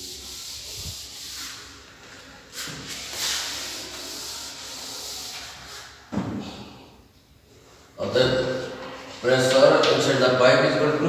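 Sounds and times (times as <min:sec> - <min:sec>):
duster rubbing on chalkboard: 0:00.0 - 0:01.9, 0:02.5 - 0:06.0.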